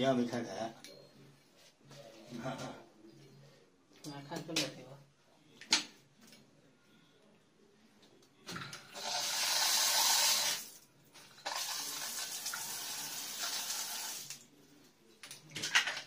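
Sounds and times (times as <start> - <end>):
shower water running: 9.0 - 10.8, 11.4 - 14.4.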